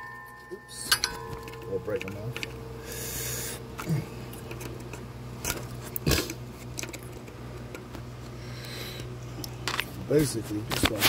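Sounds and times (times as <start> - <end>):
sharp clicks and knocks: 0.0 - 2.6.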